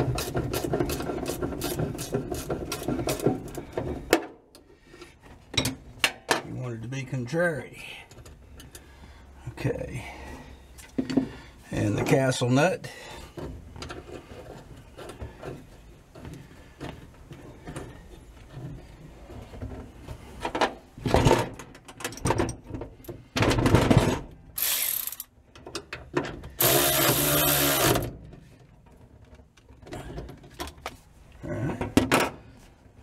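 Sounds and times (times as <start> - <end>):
clinks of nuts and tools: 5.5 - 6.5
electric ratchet motor whine: 24.6 - 25.2, 26.6 - 28.1.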